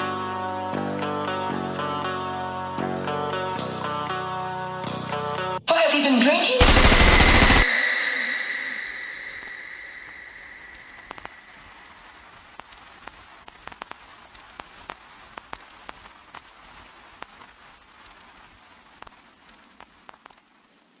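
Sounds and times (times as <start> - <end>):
rain hiss: 8.6 - 21.0
raindrops landing: 9.4 - 21.0.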